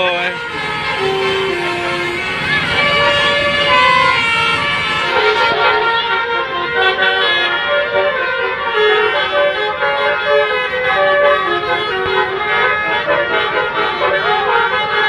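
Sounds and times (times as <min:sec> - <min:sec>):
musical air horn playing a tune: 0:00.0 - 0:15.0.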